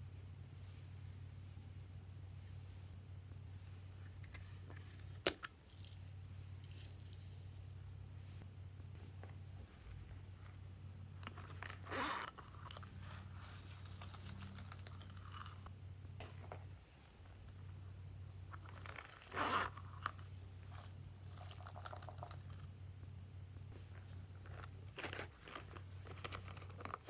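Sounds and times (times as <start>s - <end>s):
steady low hum: 0.0s - 27.0s
plastic crunches and crinkles: 24.4s - 27.0s.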